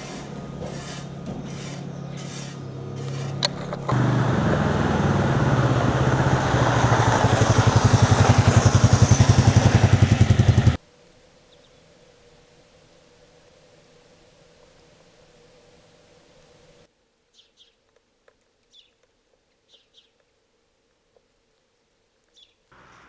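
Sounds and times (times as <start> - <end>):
broom scraping over gravel: 0.0 - 3.7
vehicle engine running: 0.0 - 10.8, 22.8 - 23.0.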